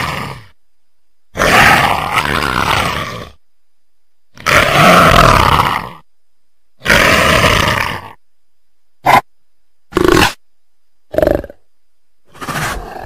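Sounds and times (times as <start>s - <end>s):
leopard roaring: 0.0s - 0.5s, 1.3s - 3.4s, 4.4s - 6.0s, 6.8s - 8.2s, 9.9s - 10.4s, 12.3s - 13.0s.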